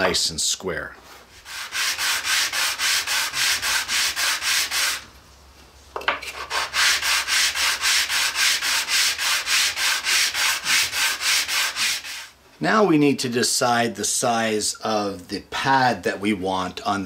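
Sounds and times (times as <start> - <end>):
wood rasping on sandpaper: 1.3 - 5.0, 6.3 - 12.3.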